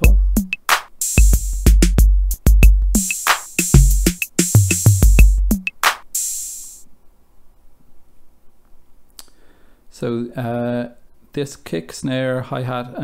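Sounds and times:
booming kick drum: 0:00.0 - 0:00.5, 0:01.2 - 0:03.1, 0:03.7 - 0:05.6
drum machine beat: 0:00.0 - 0:06.8
hi-hats: 0:00.0 - 0:06.9
snare and clap hits: 0:03.0 - 0:05.1, 0:05.8 - 0:06.1.

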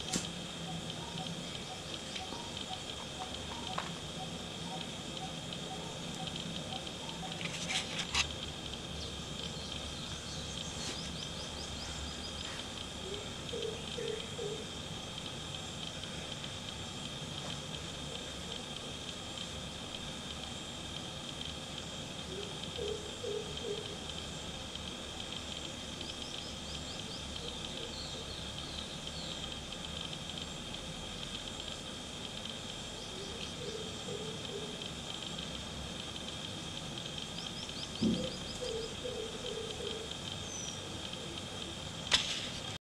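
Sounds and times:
bird chirps: 0:00.0 - 0:07.6, 0:37.3 - 0:40.8
high-pitched hiss: 0:00.0 - 0:42.8.

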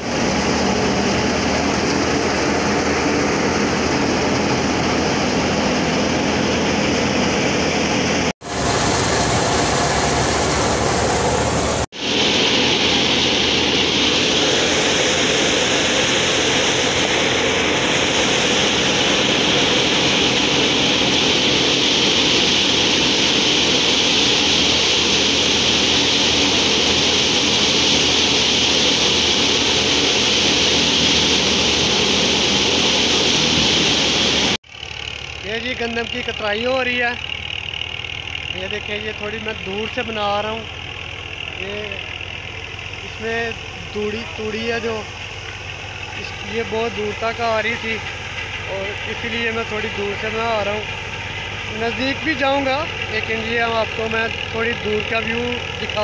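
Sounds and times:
thresher mechanical drone: 0:00.0 - 0:56.0
hiss: 0:08.4 - 0:34.8.

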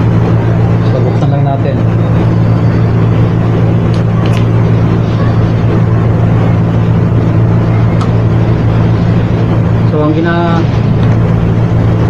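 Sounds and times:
loud machine hum: 0:00.0 - 0:12.0.

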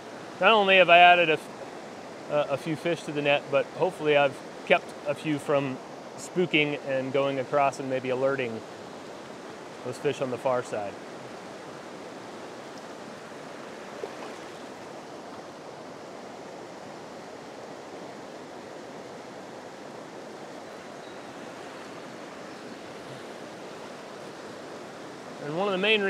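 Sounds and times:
river rushing over rocks: 0:00.0 - 0:26.0.

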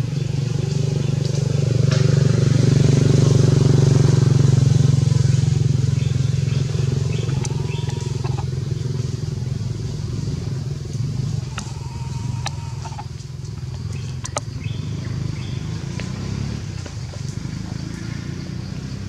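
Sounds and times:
small engine running: 0:00.0 - 0:19.0
sharp ticks: 0:06.5 - 0:09.1, 0:10.8 - 0:14.8.

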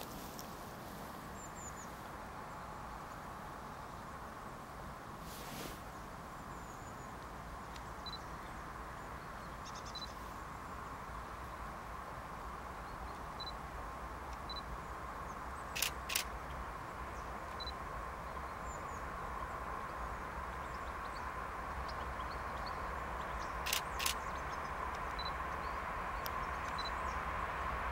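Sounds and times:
electric train rumble and hum: 0:07.6 - 0:27.9
sharp clicks: 0:15.8 - 0:16.6, 0:23.6 - 0:24.3, 0:24.9 - 0:25.3.

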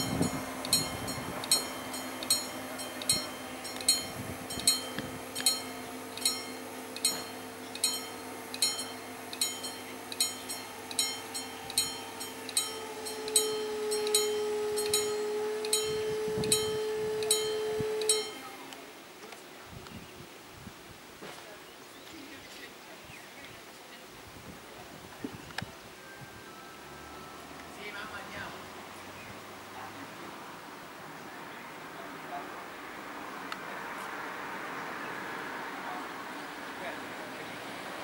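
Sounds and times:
level crossing warning bell: 0:00.0 - 0:18.6
steady hum: 0:00.0 - 0:19.2.

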